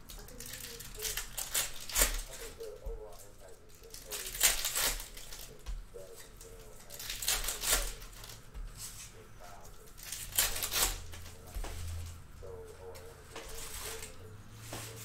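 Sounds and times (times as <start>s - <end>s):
foil wrapper crinkling and tearing: 0.1s - 8.4s, 9.8s - 12.0s.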